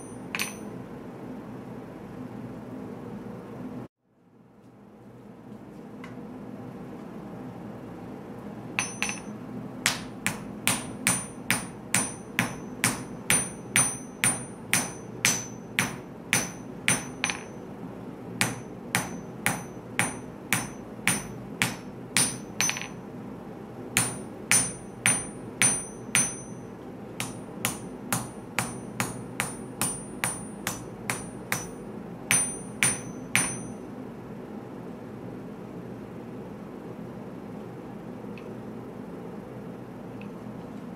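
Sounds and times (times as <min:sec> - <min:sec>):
hammer striking hot metal on anvil: 0:00.0 - 0:00.7, 0:08.8 - 0:17.6, 0:18.4 - 0:23.0, 0:24.0 - 0:33.8.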